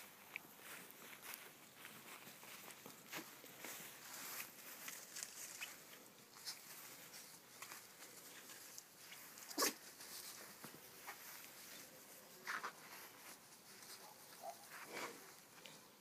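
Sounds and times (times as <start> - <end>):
small paws rustling in grass: 0.0 - 16.0
puppy yipping: 9.5 - 9.8.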